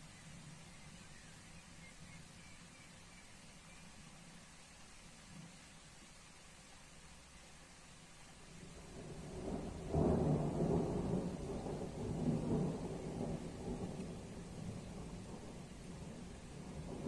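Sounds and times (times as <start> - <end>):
thunder rumbling: 8.8 - 17.0.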